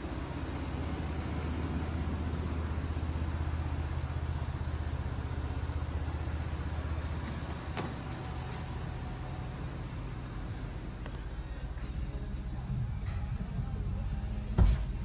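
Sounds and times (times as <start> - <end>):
car engine idling: 0.0 - 15.0
click: 11.0 - 11.2.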